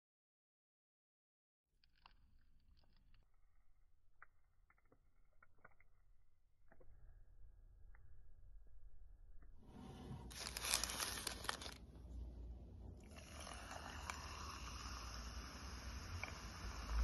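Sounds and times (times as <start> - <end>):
crackling crinkling noise: 9.8 - 12.2
soft drink fizzing over ice: 10.3 - 11.8, 13.0 - 17.0.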